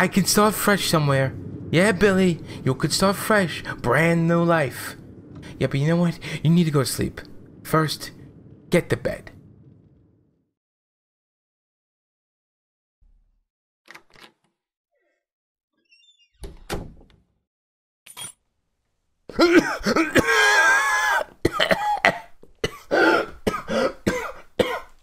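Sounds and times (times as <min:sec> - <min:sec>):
low rumble: 0:00.0 - 0:10.5
man coughing and grunting: 0:19.3 - 0:24.9.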